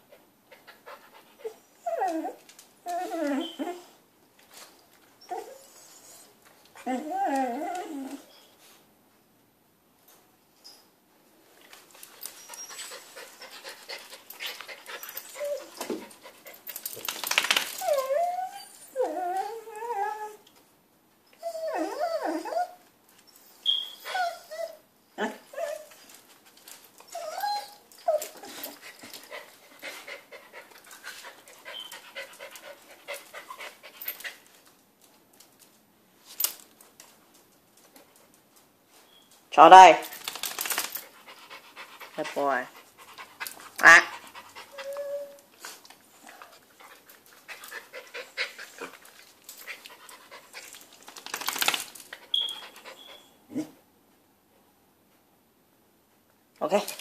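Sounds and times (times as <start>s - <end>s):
dog whining: 1.4s - 4.0s, 5.2s - 8.6s, 14.4s - 16.1s, 17.7s - 20.5s, 21.3s - 26.1s, 27.0s - 30.0s, 31.6s - 32.3s, 43.8s - 46.6s, 52.2s - 53.8s.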